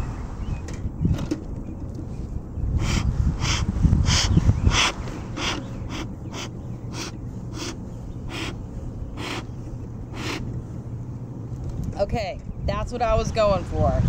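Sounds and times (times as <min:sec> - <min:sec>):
wind buffeting microphone: 0:00.0 - 0:14.0
bellows puffing hissing air: 0:02.8 - 0:10.8.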